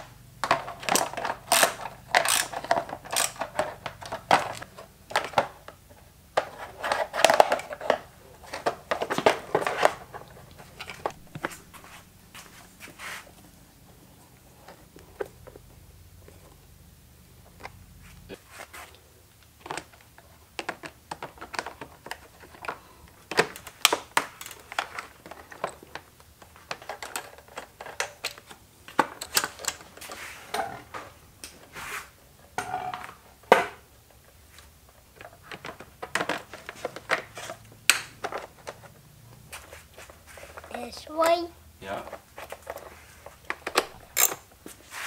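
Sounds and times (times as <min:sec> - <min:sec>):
hand tools clicking and clattering: 0:00.0 - 0:05.5, 0:40.4 - 0:44.8.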